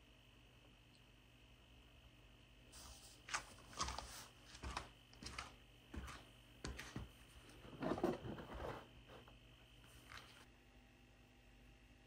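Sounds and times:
paper box set on floor: 0:02.8 - 0:09.3.

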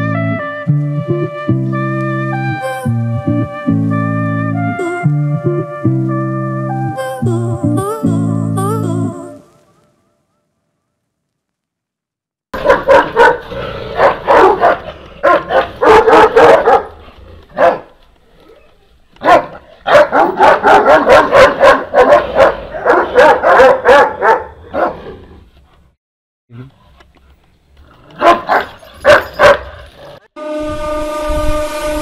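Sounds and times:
dogs barking: 0:12.6 - 0:18.0, 0:19.2 - 0:25.1, 0:28.1 - 0:29.8.

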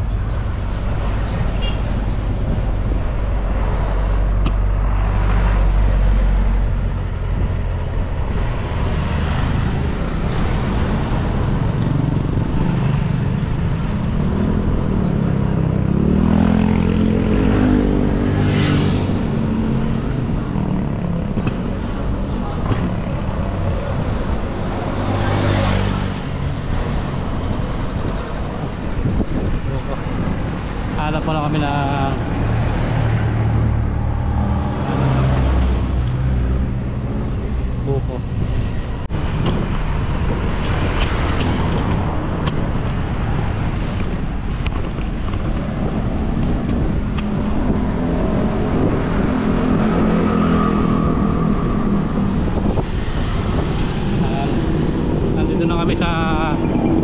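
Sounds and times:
road noise: 0:00.0 - 0:57.0
vehicle engine humming: 0:00.0 - 0:57.0
wind on microphone: 0:00.0 - 0:57.0.

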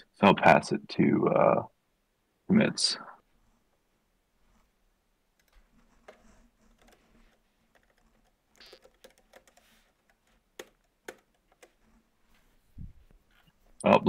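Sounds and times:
keyboard typing clicks: 0:07.7 - 0:11.8.

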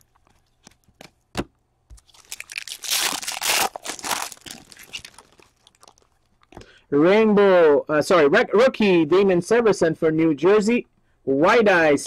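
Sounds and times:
foil wrapper tearing and crinkling: 0:02.0 - 0:06.4.

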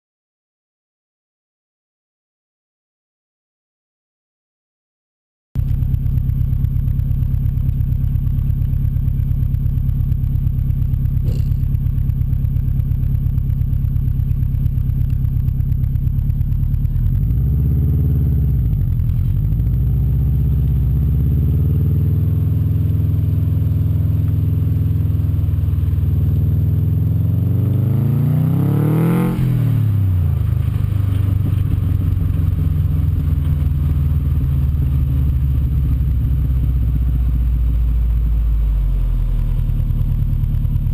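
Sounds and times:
turbocharged car engine revving: 0:10.2 - 0:40.9.

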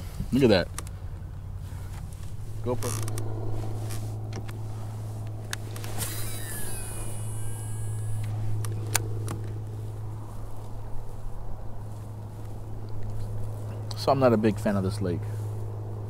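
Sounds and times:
steady low hum: 0:00.0 - 0:16.0
fishing reel whirring: 0:05.7 - 0:08.7.

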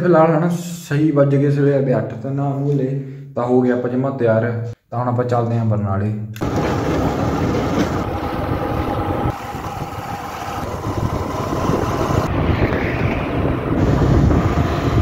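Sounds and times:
motorcycle engine running: 0:06.4 - 0:12.8
wind buffeting microphone: 0:06.4 - 0:15.0.

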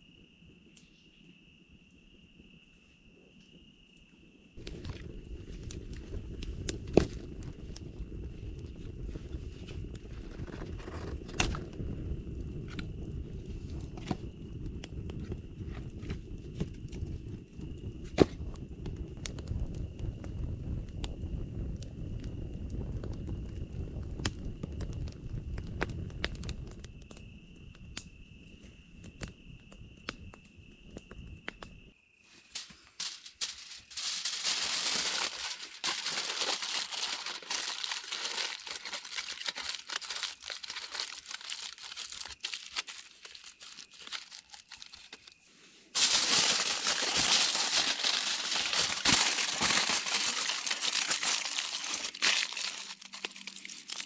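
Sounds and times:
campfire crackling: 0:04.5 - 0:31.9, 0:32.6 - 0:54.0
foil crinkling: 0:32.6 - 0:45.4, 0:46.0 - 0:54.0.

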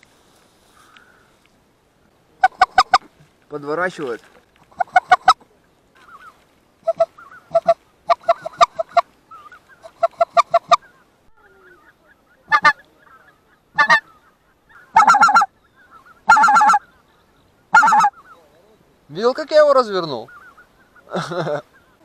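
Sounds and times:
goose call clucking and honking: 0:02.4 - 0:03.1, 0:04.7 - 0:05.4, 0:06.0 - 0:17.1, 0:17.7 - 0:18.4
geese calling: 0:02.4 - 0:03.2, 0:04.6 - 0:05.4, 0:06.0 - 0:22.0.

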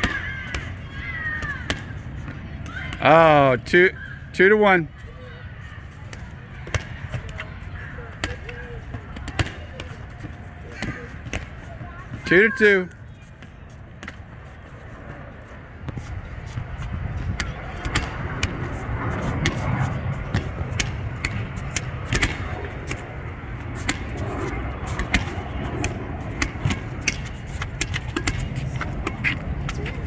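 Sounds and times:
distant voices: 0:00.0 - 0:30.0
steady low rumble: 0:12.9 - 0:30.0.

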